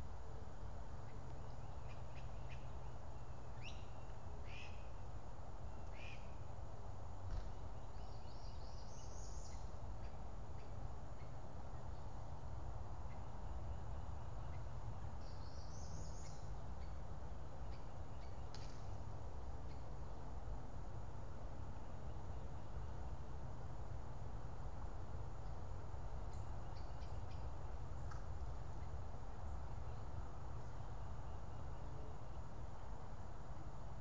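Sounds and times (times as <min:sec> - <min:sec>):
low outdoor rumble: 0:00.0 - 0:34.0
small birds chirping: 0:07.3 - 0:12.2, 0:13.0 - 0:17.0.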